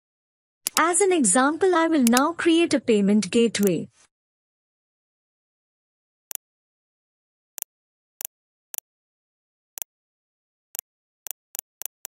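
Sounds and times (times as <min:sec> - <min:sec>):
computer mouse clicks: 0:00.7 - 0:00.9, 0:02.0 - 0:02.3.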